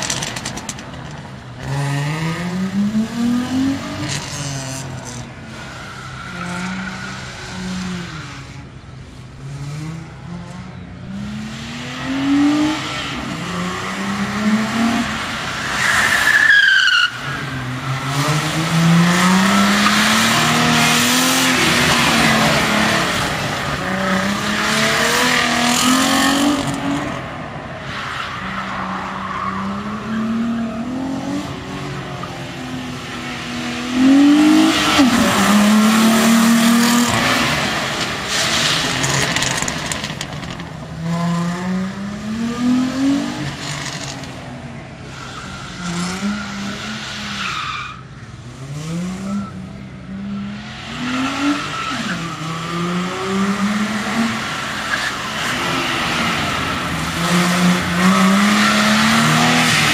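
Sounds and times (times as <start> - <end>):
car engine revving: 0.0 - 47.7, 48.3 - 59.9
tyres squealing on wet tarmac: 14.4 - 24.7, 45.0 - 48.1, 50.4 - 52.8, 53.7 - 59.9.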